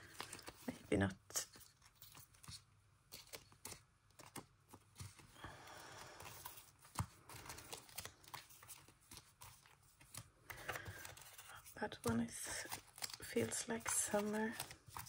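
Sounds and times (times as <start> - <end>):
paper pieces rustling: 0.0 - 0.8, 6.2 - 15.0.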